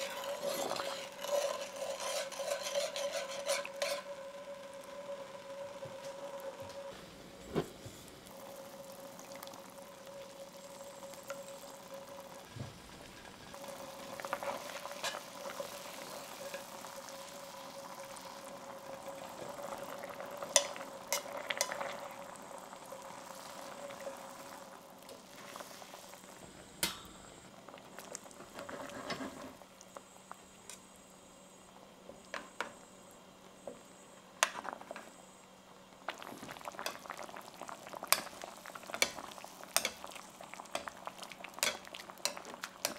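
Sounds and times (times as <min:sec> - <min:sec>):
metal spoon stirring: 0:00.0 - 0:04.2, 0:39.8 - 0:40.1, 0:41.6 - 0:42.9
sauce bubbling in a pan: 0:00.0 - 0:33.6, 0:34.2 - 0:42.9.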